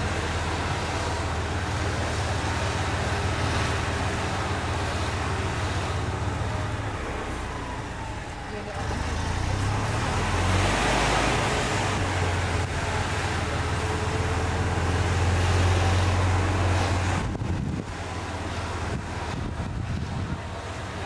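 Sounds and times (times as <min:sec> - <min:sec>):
wind on microphone: 0:16.6 - 0:20.9.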